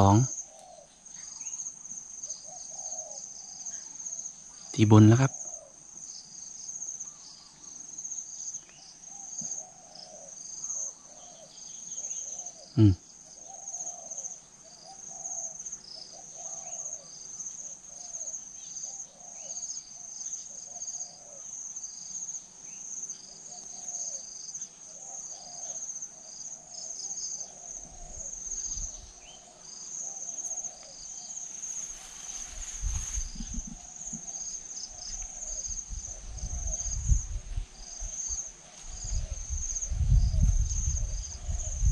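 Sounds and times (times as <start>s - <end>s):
doves cooing: 2.2s - 3.9s, 9.1s - 17.1s, 20.5s - 21.5s, 23.3s - 37.0s.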